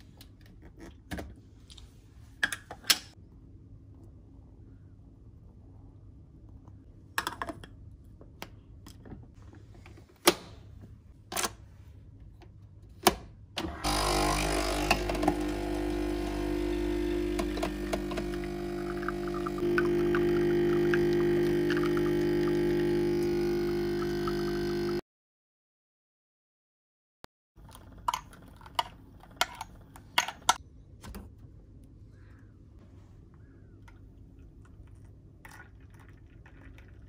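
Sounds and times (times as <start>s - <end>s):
coffee machine pump buzzing hum: 13.8s - 25.0s.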